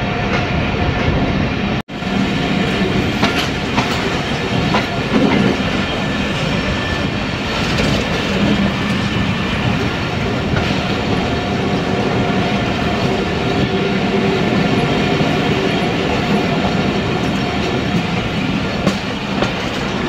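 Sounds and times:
train rumbling along track: 0:00.0 - 0:20.0
wheels clicking over rail joints: 0:07.4 - 0:11.4, 0:14.8 - 0:20.0.

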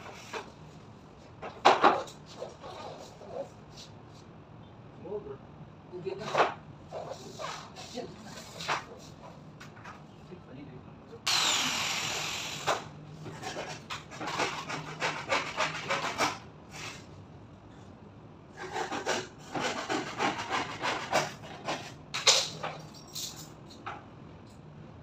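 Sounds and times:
power tool winding down: 0:11.3 - 0:12.8.

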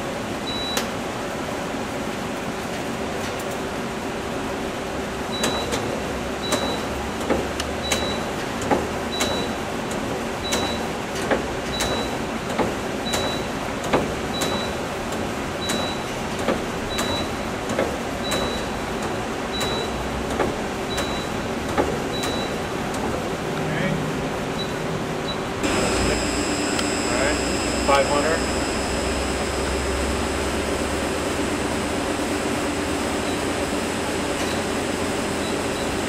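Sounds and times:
lathe humming: 0:25.5 - 0:36.0
short high beep: 0:25.7 - 0:29.7.

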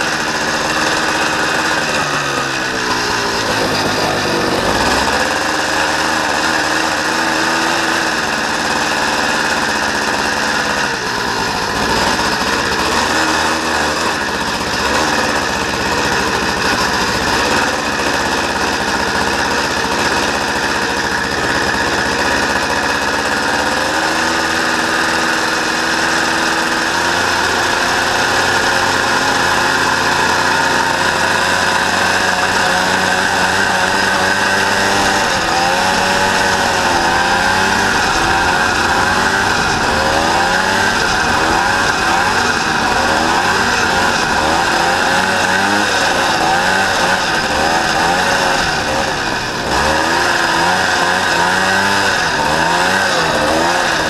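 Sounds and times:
buggy engine running: 0:00.0 - 0:54.0.

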